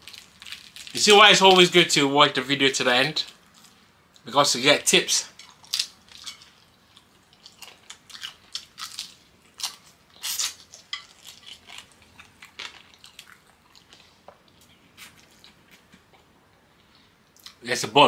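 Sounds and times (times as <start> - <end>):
crunchy chewing: 5.4 - 16.2.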